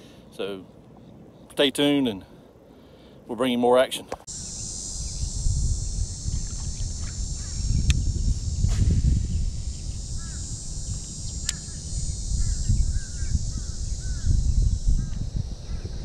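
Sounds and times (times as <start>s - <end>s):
steady high hiss: 0.0s - 16.0s
birds chirping: 4.4s - 8.3s, 9.3s - 16.0s
low rumble on microphone: 4.8s - 16.0s
sharp clicks: 11.4s - 11.7s.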